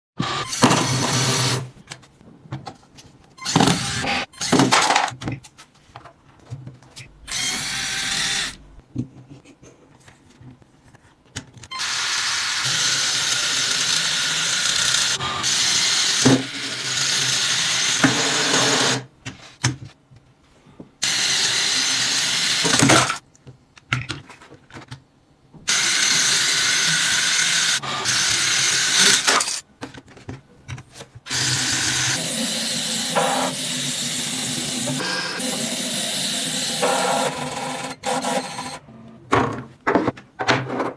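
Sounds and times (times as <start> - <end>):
plastic parts clicking and knocking: 4.4 - 7.2, 22.6 - 25.7
toy car motor and gears whirring: 11.7 - 18.9, 21.0 - 23.2, 25.7 - 29.6.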